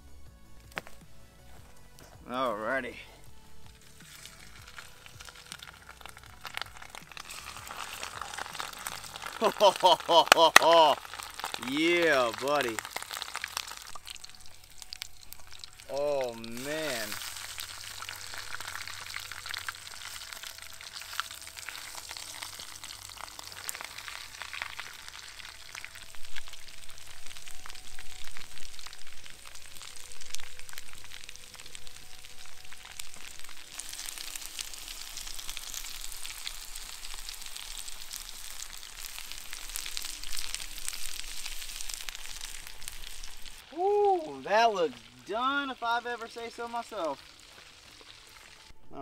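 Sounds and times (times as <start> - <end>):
meat deep-frying in oil: 3.6 - 48.7.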